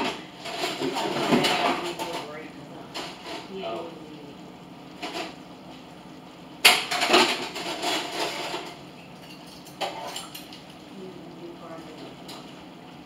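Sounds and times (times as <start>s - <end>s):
dishes clattering in a sink: 0.0s - 3.5s, 6.6s - 10.7s.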